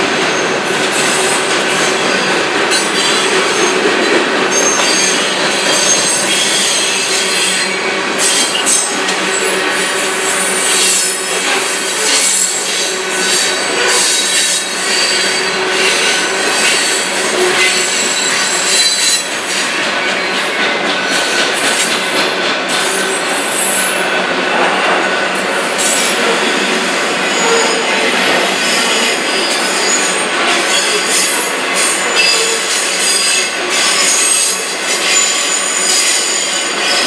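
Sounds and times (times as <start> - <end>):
freight train wheels rattling: 0.0 - 37.0
wheel squealing: 2.2 - 19.7.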